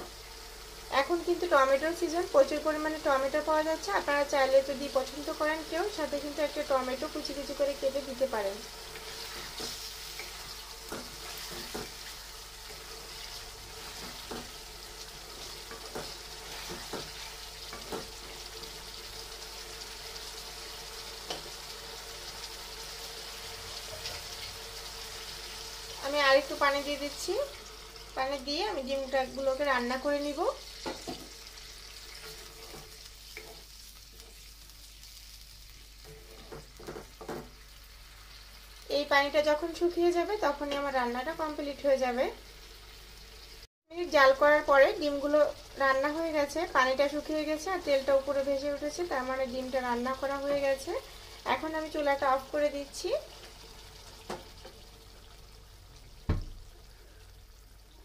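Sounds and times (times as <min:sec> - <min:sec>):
masala sizzling in a pan: 0:00.0 - 0:58.0
spatula tapping and scraping pan: 0:09.0 - 0:12.1, 0:13.8 - 0:14.6, 0:15.4 - 0:18.2, 0:30.8 - 0:31.4, 0:32.1 - 0:34.4, 0:36.0 - 0:37.6.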